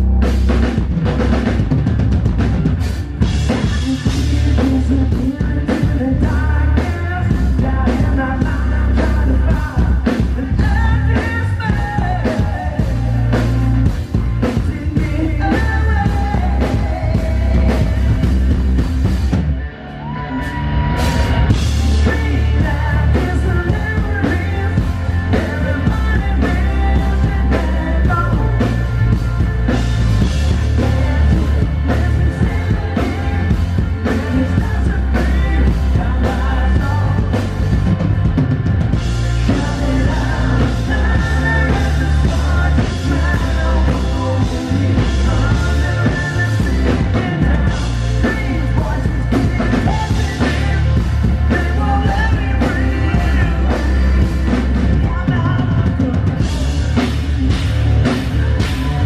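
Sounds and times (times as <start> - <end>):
rock band playing live: 0.0 - 59.0
person singing: 3.2 - 18.6, 19.8 - 59.0.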